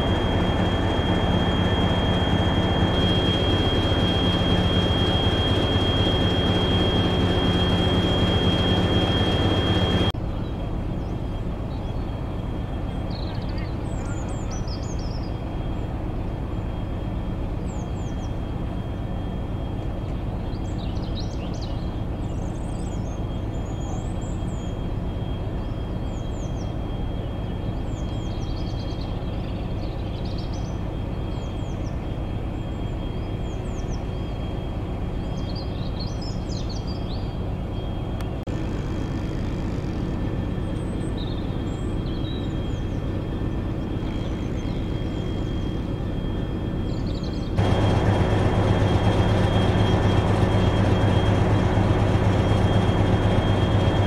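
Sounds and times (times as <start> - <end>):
thin high whine: 0.0 - 10.2
diesel locomotives idling: 0.0 - 29.4, 34.6 - 54.0.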